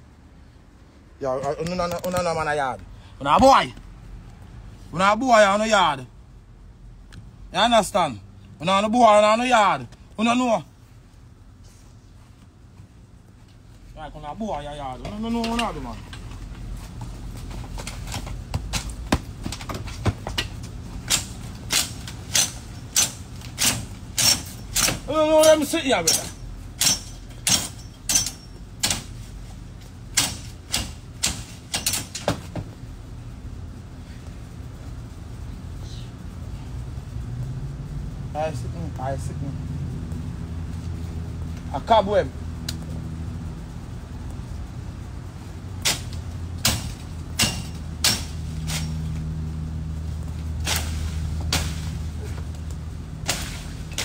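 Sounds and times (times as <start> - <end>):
steady low hum: 0.0 - 54.0
machete chopping branches: 17.8 - 29.2, 30.1 - 32.6, 45.8 - 49.3, 50.4 - 54.0.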